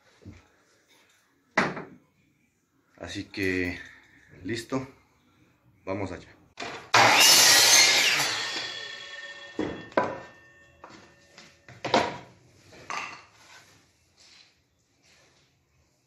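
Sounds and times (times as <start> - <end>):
miter saw blade spinning down: 7.0 - 9.9.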